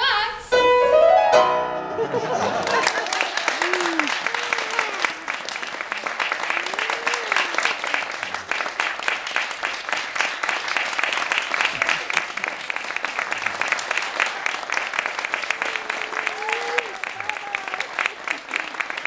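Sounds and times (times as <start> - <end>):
audience applauding: 2.0 - 19.0
person cheering: 2.7 - 5.4, 6.5 - 7.9, 15.5 - 18.8.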